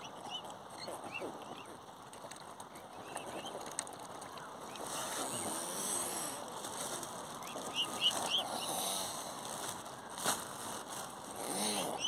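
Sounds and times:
waterfowl high chirps: 0:07.4 - 0:08.7.

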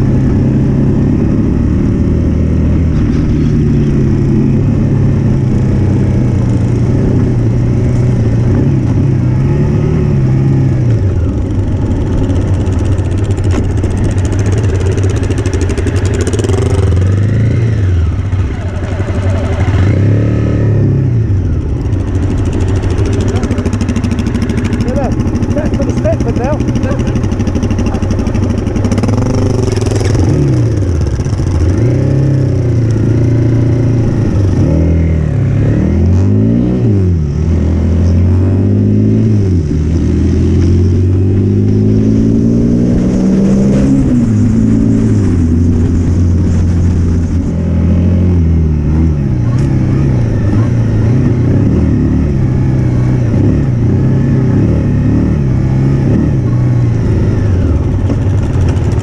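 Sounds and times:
motorcycle engine accelerating: 0:00.0 - 0:59.0.

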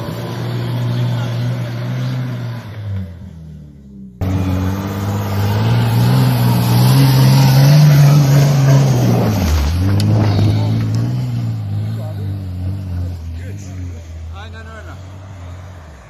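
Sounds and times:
engine revving hard: 0:04.2 - 0:13.9
tyres churning snow: 0:04.2 - 0:16.0.

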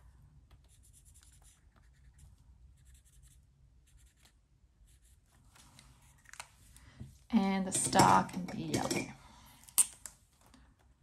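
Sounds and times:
pen scratching on paper: 0:00.7 - 0:02.2, 0:02.8 - 0:05.2.

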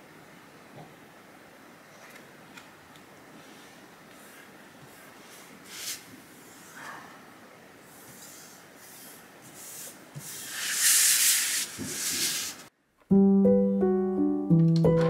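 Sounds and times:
sheet sliding on cutting mat: 0:07.9 - 0:12.7
gentle piano music: 0:13.0 - 0:15.0.

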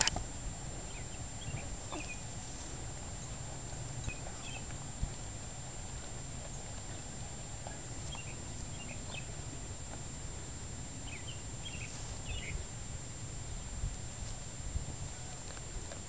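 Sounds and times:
low outdoor rumble: 0:00.0 - 0:16.0
small birds chirping: 0:00.8 - 0:09.6, 0:11.0 - 0:12.8
dog chewing with soft crunches: 0:01.9 - 0:10.6, 0:14.2 - 0:16.0.

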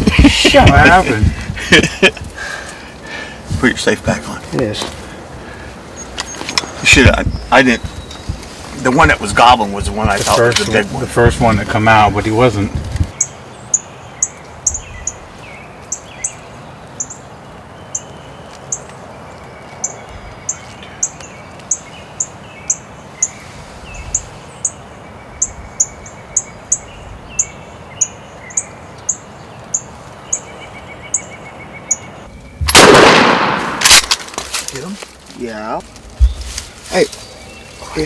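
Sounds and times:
faint birdsong: 0:00.0 - 0:38.0
small bird chirping: 0:05.9 - 0:08.6, 0:12.8 - 0:32.7, 0:36.1 - 0:38.0
shotgun blast: 0:32.7 - 0:34.2.

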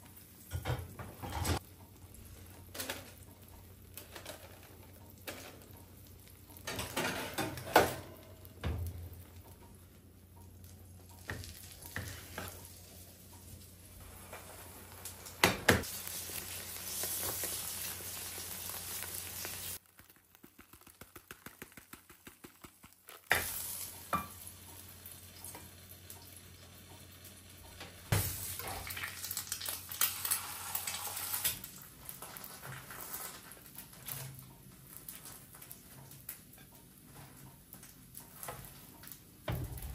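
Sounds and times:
food sizzling in a frying pan: 0:00.0 - 0:39.9
regular ticks: 0:09.1 - 0:11.2.

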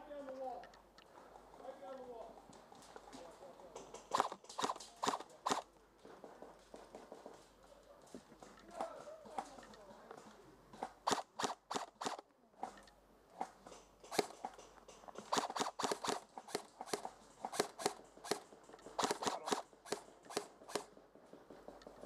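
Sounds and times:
airsoft guns firing: 0:04.0 - 0:05.7, 0:10.8 - 0:12.2, 0:14.0 - 0:21.0.

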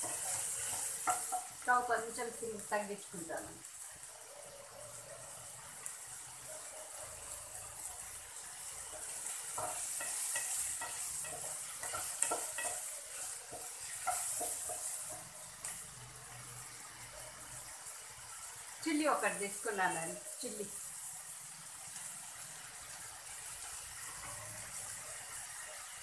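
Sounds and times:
wooden spatula scraping a pan: 0:00.0 - 0:01.6, 0:08.5 - 0:15.8
mushrooms sizzling in oil: 0:00.0 - 0:26.0.

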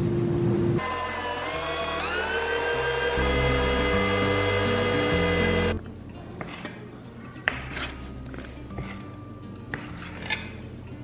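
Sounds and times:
food processor motor whine: 0:00.8 - 0:05.8
background music: 0:00.8 - 0:11.0.

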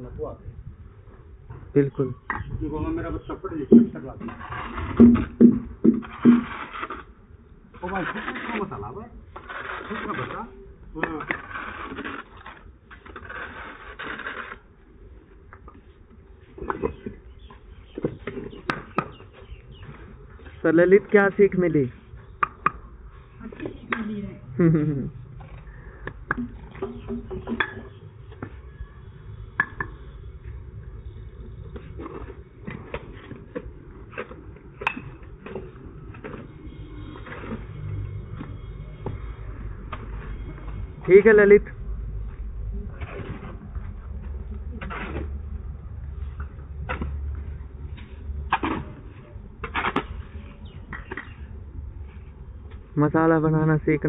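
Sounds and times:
tool tapping bricks: 0:03.7 - 0:04.1, 0:04.8 - 0:06.6, 0:17.9 - 0:20.0, 0:22.4 - 0:22.8, 0:29.6 - 0:30.0
shovel scraping wet mortar: 0:03.7 - 0:14.8, 0:44.8 - 0:45.4.

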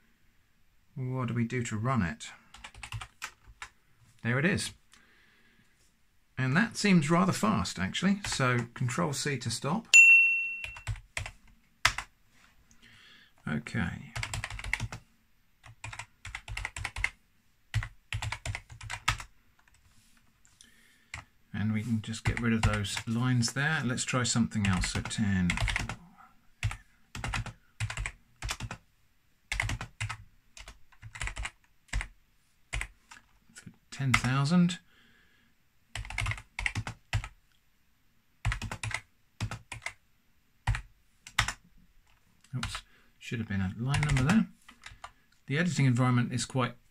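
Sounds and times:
typing on computer keyboard: 0:02.5 - 0:03.7, 0:10.7 - 0:12.1, 0:14.2 - 0:15.0, 0:15.6 - 0:19.8, 0:24.6 - 0:26.0, 0:26.6 - 0:28.8, 0:29.5 - 0:32.1, 0:32.7 - 0:33.3, 0:36.0 - 0:37.4, 0:38.4 - 0:40.0, 0:40.6 - 0:42.8, 0:43.9 - 0:45.2.

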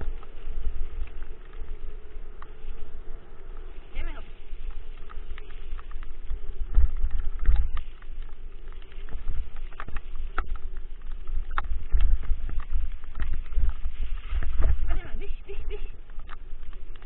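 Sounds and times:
low rumble of scooter ride: 0:00.0 - 0:17.0.

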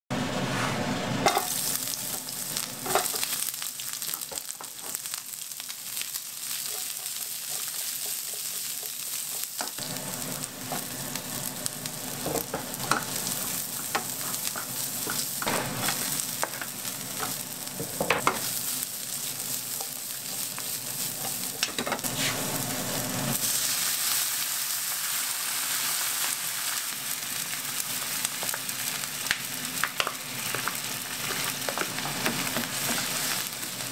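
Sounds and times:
vegetables sizzling in oil: 0:01.2 - 0:33.9
wooden spatula scraping pan: 0:21.0 - 0:22.5.

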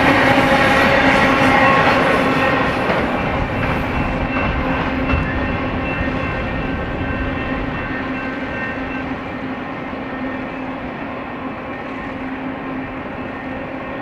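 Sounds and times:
freight train rumble and rail noise: 0:00.0 - 0:14.0.

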